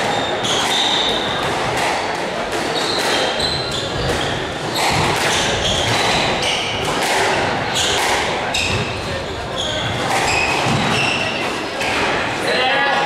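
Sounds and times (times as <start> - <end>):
shoes squeaking on wooden floor: 0.0 - 1.8, 2.8 - 11.4
squash ball smacks: 4.0 - 8.9.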